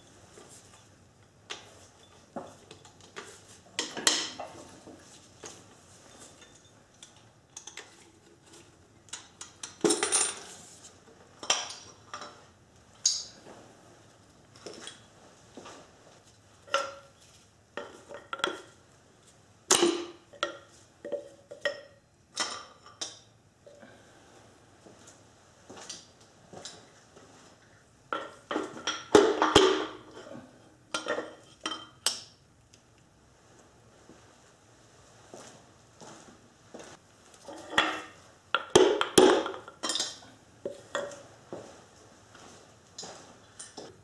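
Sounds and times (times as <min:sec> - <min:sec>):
metal clinks and clanks of tools: 0:09.1 - 0:10.6.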